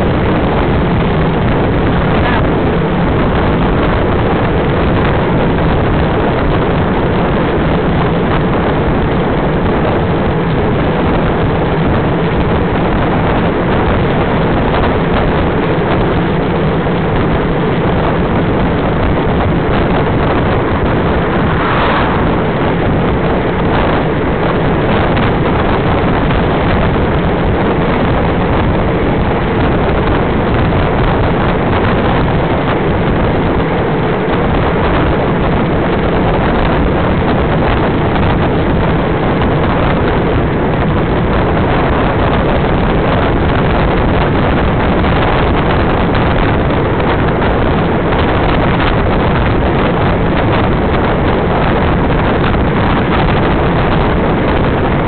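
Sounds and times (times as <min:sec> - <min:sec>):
wind rushing on microphone: 0:00.0 - 0:55.0.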